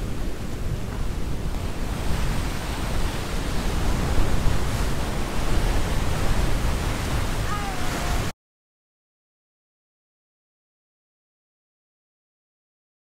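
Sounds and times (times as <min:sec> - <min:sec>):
ocean surf washing on beach: 0:00.0 - 0:08.3
wind rumbling on microphone: 0:00.0 - 0:08.3.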